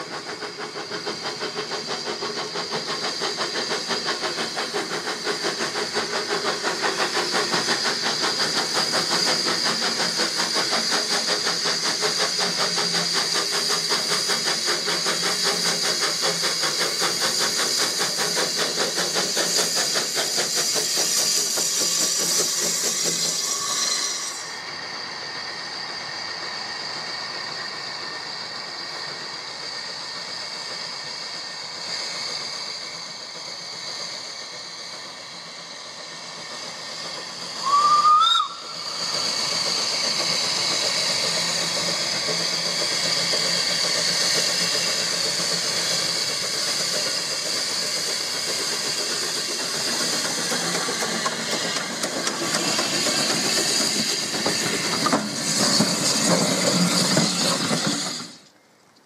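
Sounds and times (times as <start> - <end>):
steam hissing from locomotive: 0.0 - 58.8
steam whistle blast: 37.6 - 38.8.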